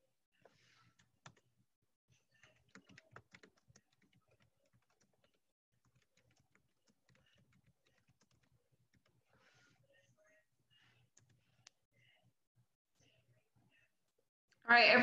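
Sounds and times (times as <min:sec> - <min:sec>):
typing on computer keyboard: 0:00.9 - 0:01.4, 0:02.3 - 0:09.3.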